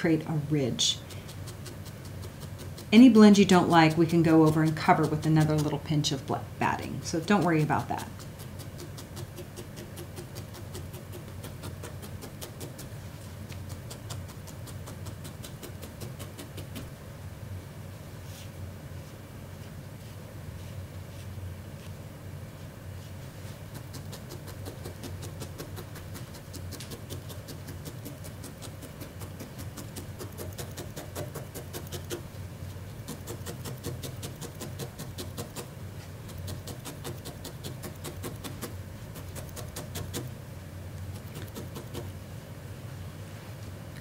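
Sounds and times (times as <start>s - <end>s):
felting needle poking wool: 0.0s - 16.9s, 23.4s - 40.4s, 41.0s - 42.2s.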